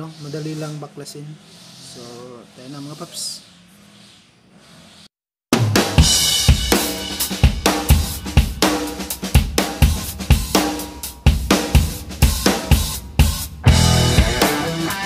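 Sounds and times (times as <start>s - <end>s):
drum kit steady beat: 5.5s - 15.0s
pitched instruments: 13.6s - 15.0s.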